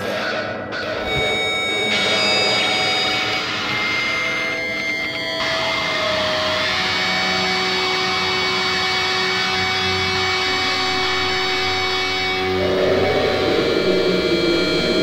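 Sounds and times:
electronic drone tones: 0.6 - 15.0
low hum: 11.0 - 15.0.

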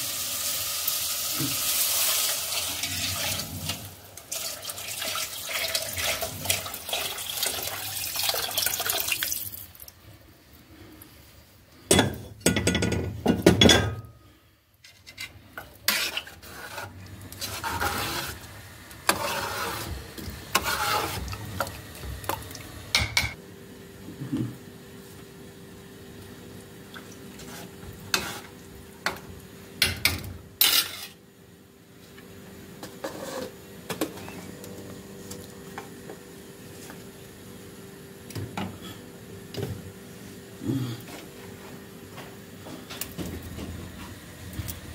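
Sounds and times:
spoon and pots clattering: 11.9 - 14.1.

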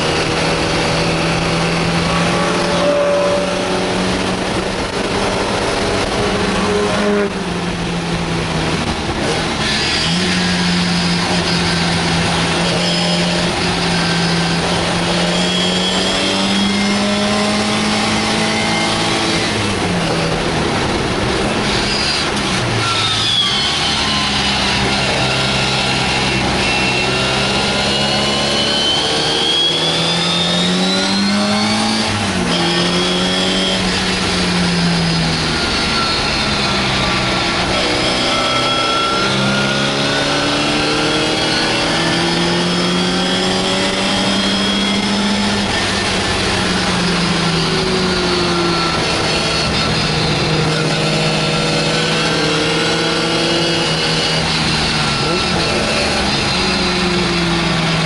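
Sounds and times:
racing car engine revving: 0.0 - 58.0.

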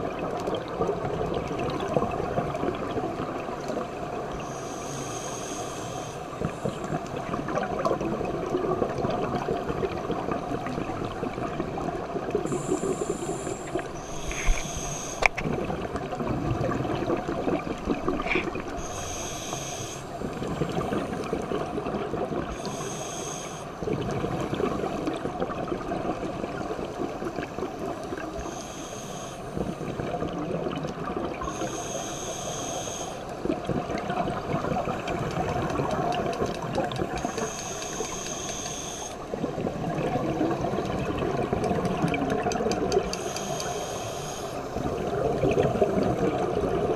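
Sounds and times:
regulator inhale hiss with whistle: 4.4 - 6.7, 12.5 - 15.4, 18.8 - 21.2, 22.5 - 23.8, 28.3 - 29.8, 31.4 - 33.4, 37.2 - 39.3, 43.1 - 44.8.

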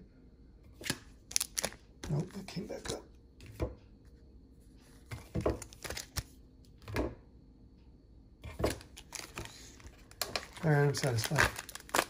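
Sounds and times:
card packs knocking and rustling: 5.2 - 6.2, 8.5 - 12.0.

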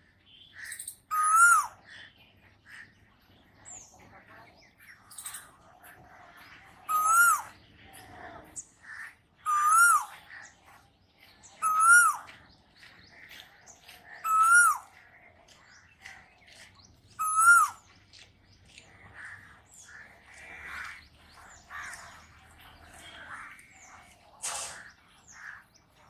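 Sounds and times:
birds chirping: 0.0 - 26.0
koel whistled calls: 17.2 - 17.8.

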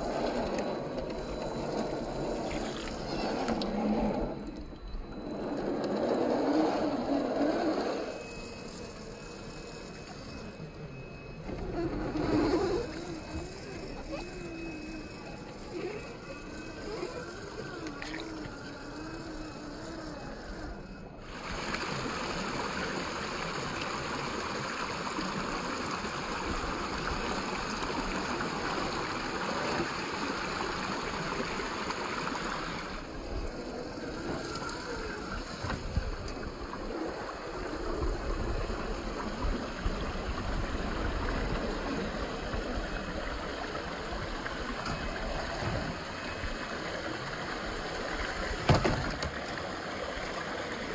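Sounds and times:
electric motors and gears whining: 0.0 - 50.9
stream water rushing over rocks: 21.3 - 34.7.

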